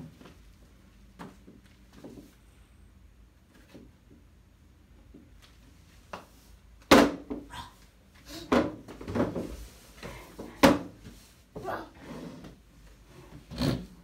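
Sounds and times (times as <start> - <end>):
chair scraping and bumping: 8.4 - 14.0
plastic chair knocking on wooden floor: 8.5 - 9.6.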